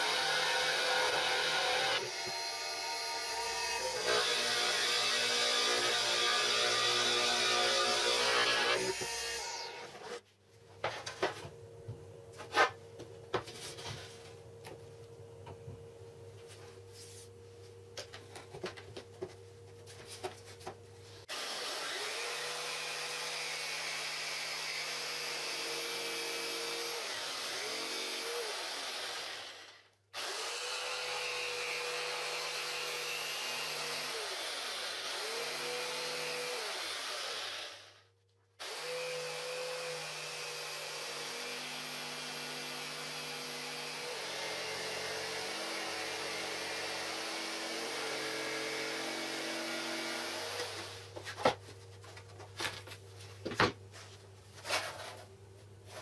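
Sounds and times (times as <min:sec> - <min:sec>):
electric jigsaw cutting board: 0:00.0 - 0:10.2, 0:21.3 - 0:38.0, 0:38.6 - 0:51.1.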